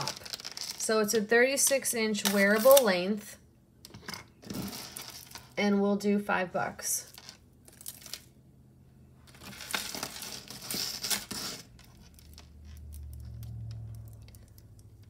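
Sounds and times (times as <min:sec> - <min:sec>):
packaging crinkling and rustling: 0:00.0 - 0:00.9, 0:04.4 - 0:05.6, 0:07.1 - 0:08.4, 0:09.3 - 0:15.0.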